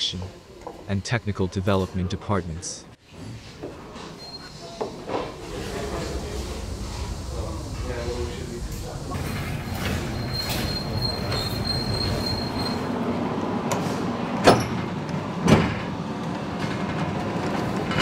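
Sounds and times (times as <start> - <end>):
thin high squeal: 4.1 - 4.8, 9.1 - 12.9
trolley rolling rumble: 4.9 - 14.3, 14.9 - 18.0.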